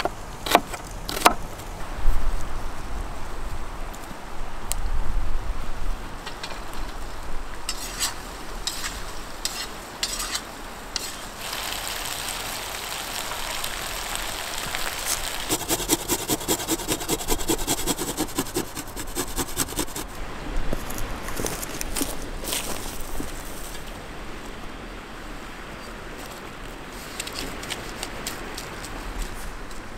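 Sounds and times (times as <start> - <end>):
meat sizzling in hot oil: 11.0 - 15.5
rattling strokes: 15.5 - 20.1.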